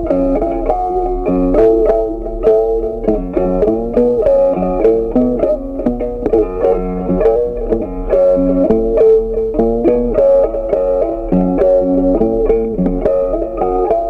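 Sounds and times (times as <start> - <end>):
plucked string instrument music: 0.0 - 14.0.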